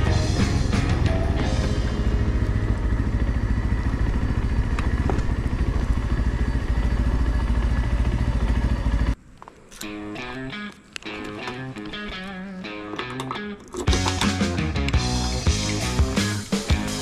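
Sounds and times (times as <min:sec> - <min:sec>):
motorcycle engine running: 0:00.0 - 0:09.2, 0:13.9 - 0:17.0.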